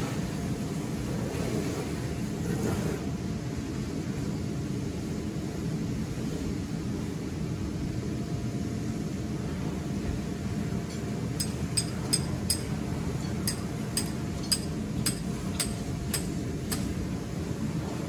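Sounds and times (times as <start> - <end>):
hammer striking metal stake: 10.9 - 17.0.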